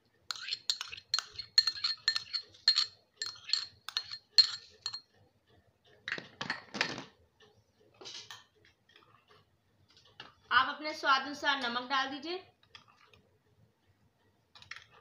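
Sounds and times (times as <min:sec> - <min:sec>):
metal spoon clinking on glass bowl: 0:00.3 - 0:05.1.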